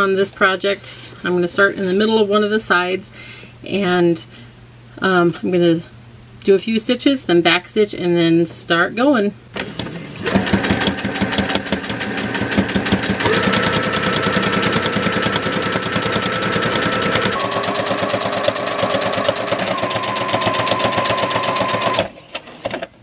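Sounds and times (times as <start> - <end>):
sewing machine running: 9.6 - 22.7.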